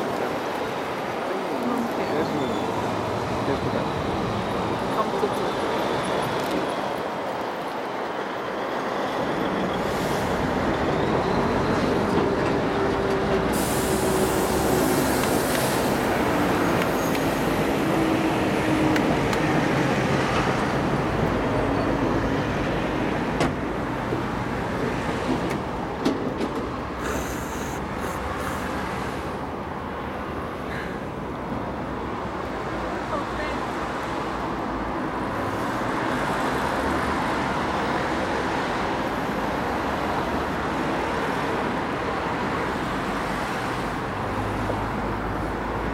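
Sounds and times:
steady traffic: 0.0 - 45.9
trucks passing by: 0.0 - 45.9
brief high hiss: 13.5 - 16.0, 27.0 - 29.2.

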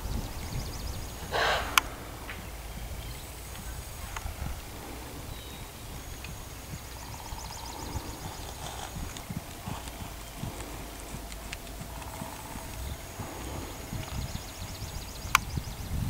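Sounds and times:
short rushing burst: 0.0 - 5.7
sharp crack: 0.0 - 14.6
horse hooves thudding on sand: 0.0 - 16.0.

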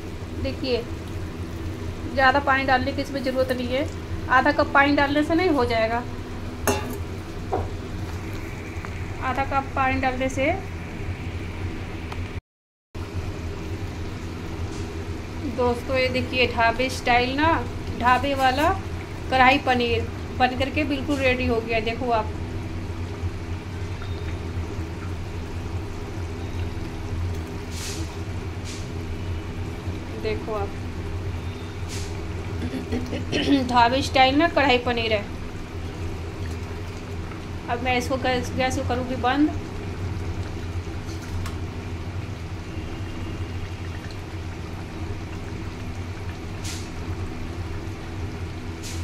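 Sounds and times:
gravy bubbling: 0.0 - 10.1, 13.1 - 48.9
steady low hum: 0.0 - 12.4, 13.0 - 49.0
short scraping hisses: 27.7 - 28.9.

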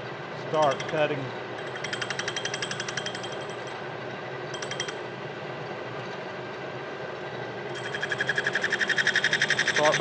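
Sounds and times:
lathe tool ticking: 1.6 - 3.6, 4.6 - 5.0.

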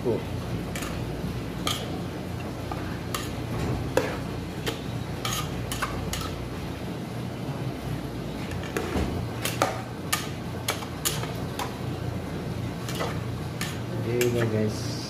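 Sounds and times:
steady low hum: 0.0 - 15.0
metal spatula scraping frying pan: 3.0 - 6.4, 9.4 - 11.4, 12.8 - 14.5.

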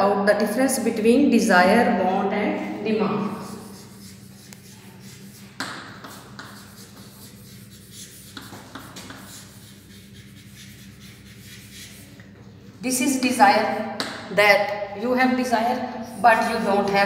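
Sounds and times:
low steady hum: 0.0 - 17.0
chalk scratching on chalkboard: 3.2 - 12.4.

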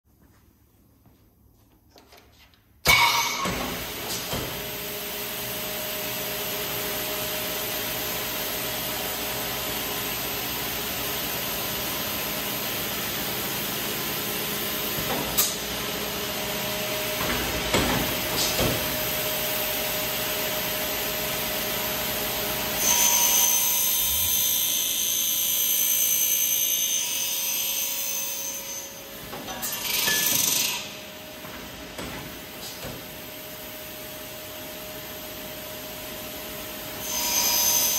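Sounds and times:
shrill saw cutting: 18.9 - 31.1, 36.9 - 37.9.

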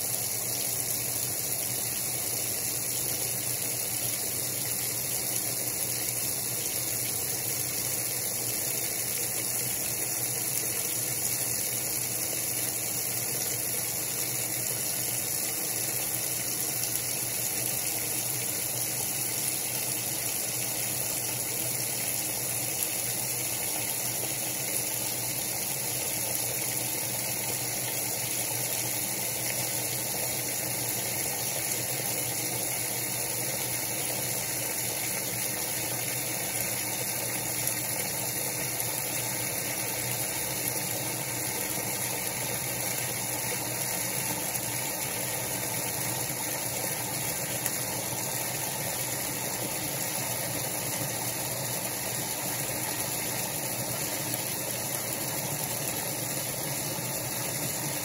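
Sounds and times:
washing machine hum and hiss: 0.0 - 58.0.

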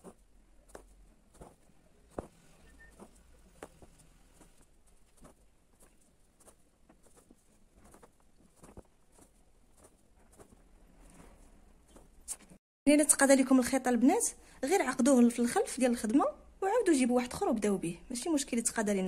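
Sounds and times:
thread drawn through fabric: 0.0 - 12.6.

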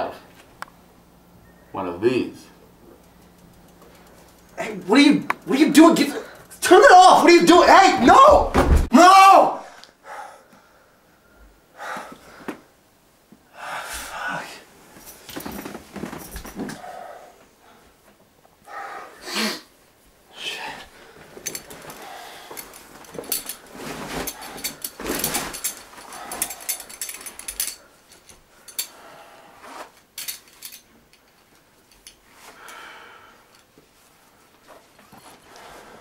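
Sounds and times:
bedding rustling: 13.8 - 18.2, 20.8 - 32.7
man breathing heavily in gasps: 21.9 - 22.8, 32.5 - 33.6.

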